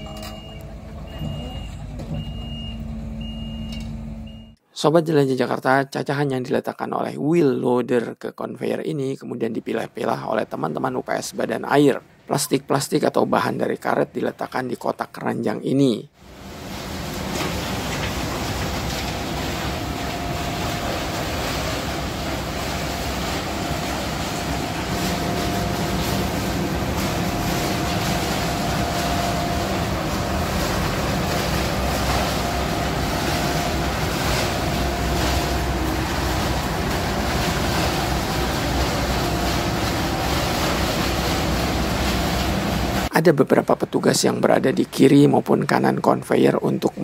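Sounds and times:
conveyor belt machinery droning: 0:16.2 - 0:43.1
low machine hum: 0:16.2 - 0:43.1
faint machine whine: 0:16.3 - 0:43.1.

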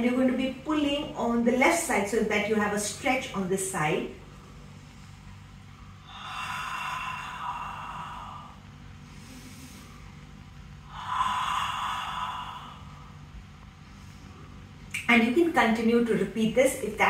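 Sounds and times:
faint in-breath: 0:04.3 - 0:14.8.

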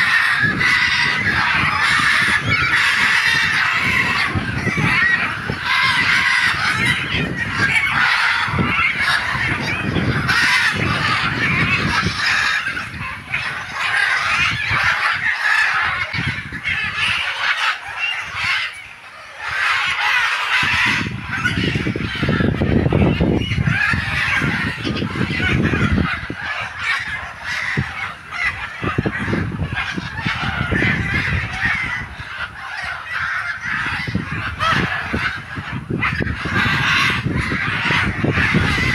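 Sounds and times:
parrots squawking: 0:00.0 - 0:38.9
wind rumble on microphone: 0:00.0 - 0:38.9.

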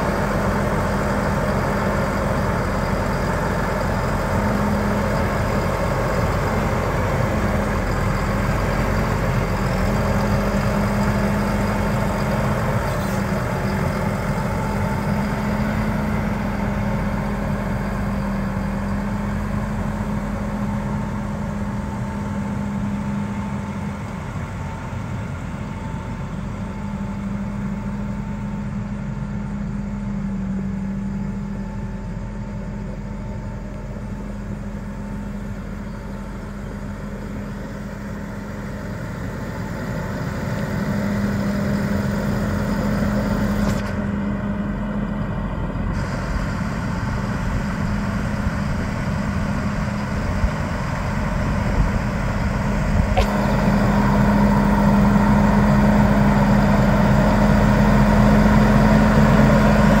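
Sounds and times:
tractor diesel engine driving: 0:00.0 - 1:00.0.

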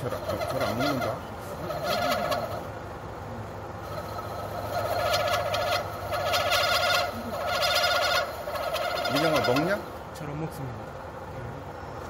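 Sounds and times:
cutting tool chattering squeal: 0:00.0 - 0:02.7, 0:03.9 - 0:09.9
lathe turning: 0:00.0 - 0:03.0, 0:03.7 - 0:10.1.

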